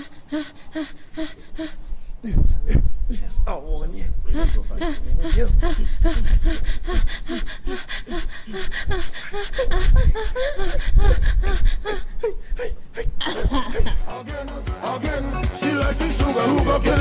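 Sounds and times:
person panting and gasping: 0.0s - 3.3s, 4.3s - 14.0s.

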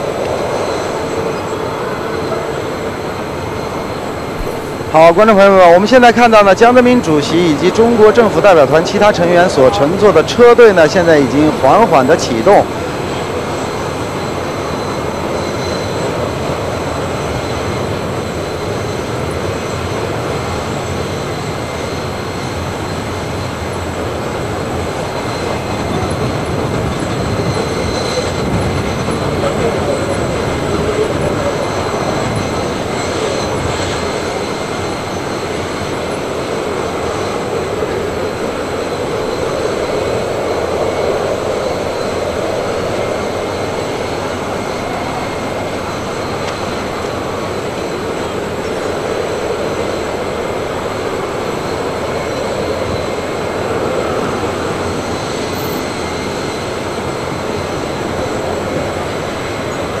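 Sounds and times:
high whining tones: 0.0s - 20.0s
aircraft engine rumble and hiss: 0.0s - 60.0s.

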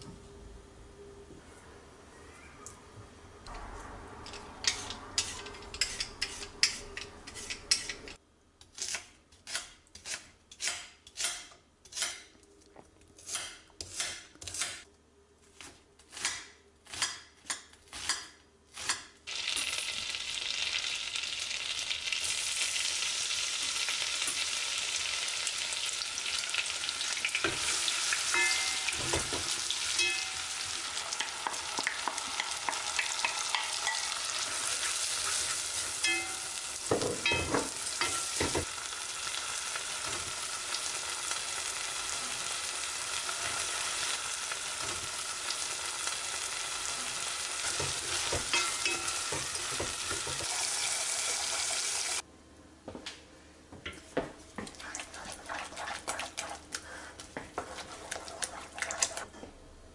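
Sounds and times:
onion and rice sizzling in oil: 17.9s - 52.2s
wooden spoon scraping pot: 54.6s - 59.3s.

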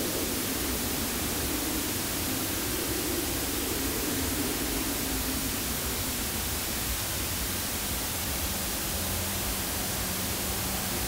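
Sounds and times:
static hiss: 0.0s - 11.0s.

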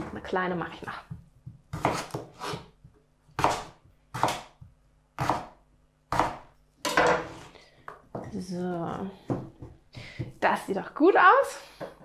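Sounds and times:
knife slicing potato on board: 1.7s - 6.5s.

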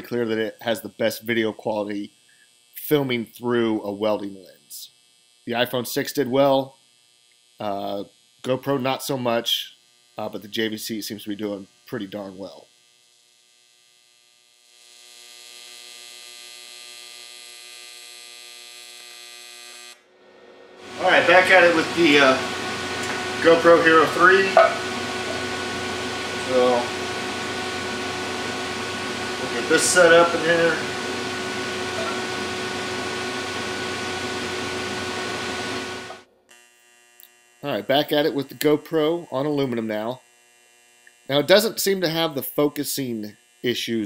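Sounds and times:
welding arc buzzing: 0.0s - 44.0s
fan whooshing: 20.1s - 36.2s.

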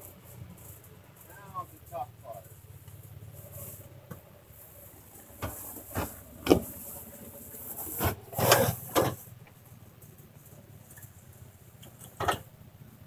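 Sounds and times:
low steady rumble: 0.0s - 13.0s
sharp knocks and clunks: 5.4s - 6.7s, 11.9s - 12.5s.

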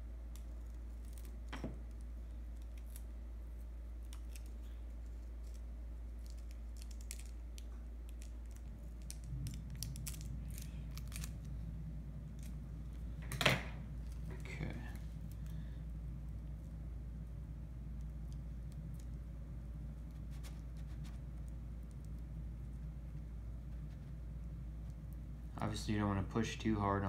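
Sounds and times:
low hum: 0.0s - 27.0s
tape crinkling: 4.0s - 13.2s.

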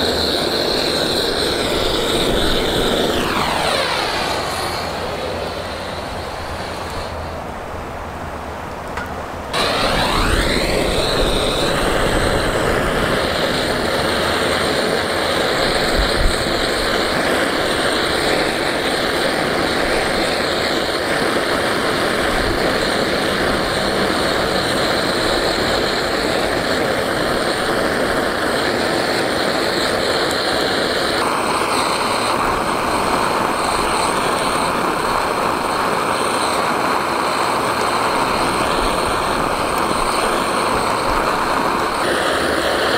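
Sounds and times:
gas blowtorch hissing: 0.0s - 42.9s.

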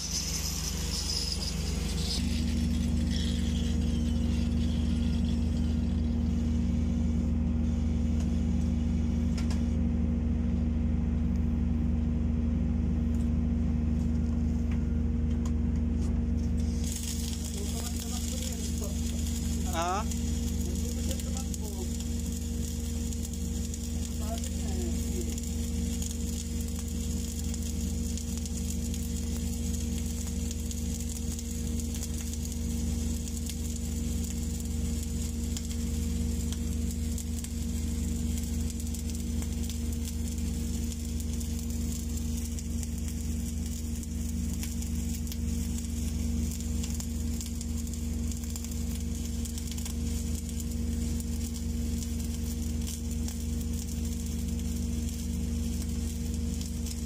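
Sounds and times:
welding arc sizzling and crackling: 0.0s - 11.6s, 13.0s - 57.0s
low hum: 0.0s - 57.0s.

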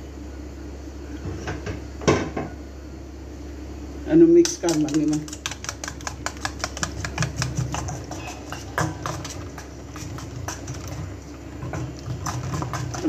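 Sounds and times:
spoon beating eggs in metal bowl: 4.4s - 13.0s.

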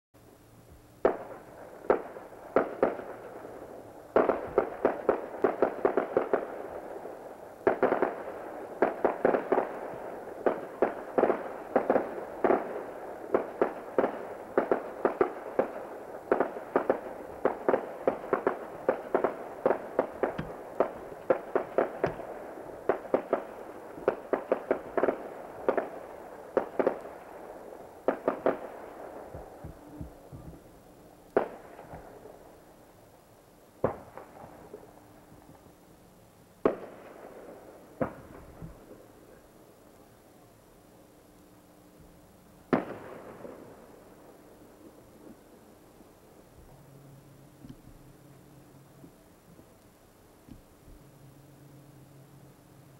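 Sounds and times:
fireworks crackle: 1.0s - 33.2s, 42.6s - 47.0s
fireworks bangs and pops: 4.1s - 6.6s, 7.6s - 27.2s, 28.0s - 30.7s.

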